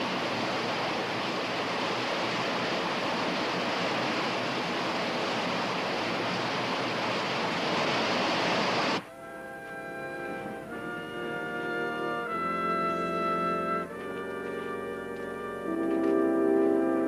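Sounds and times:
stream rushing through rapids: 0.0s - 17.0s
brass music: 9.0s - 17.0s.

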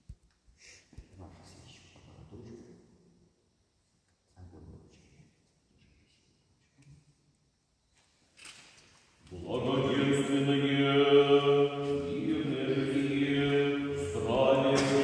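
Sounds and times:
liturgical chant in held notes: 9.2s - 15.0s.

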